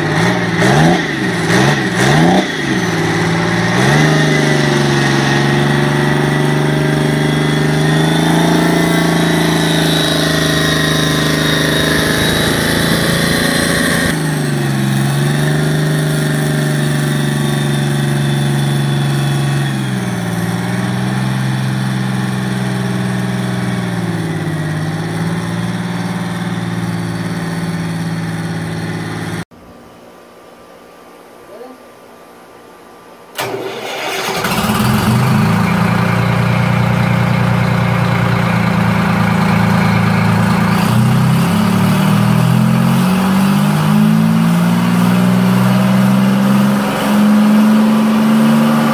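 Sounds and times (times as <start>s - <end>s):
high whine: 0.0s - 30.0s
diesel engine fast idle: 33.4s - 41.2s.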